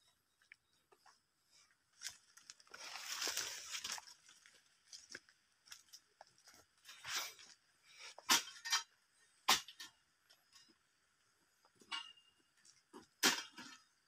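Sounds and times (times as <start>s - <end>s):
footsteps crunching through dry leaves: 2.0s - 7.6s.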